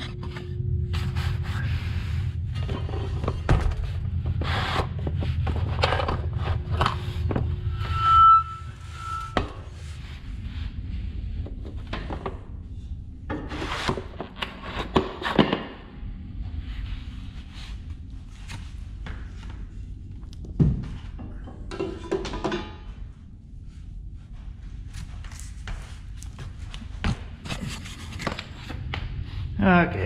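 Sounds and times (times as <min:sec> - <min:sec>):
brief high squeak: 0:07.8 - 0:09.5.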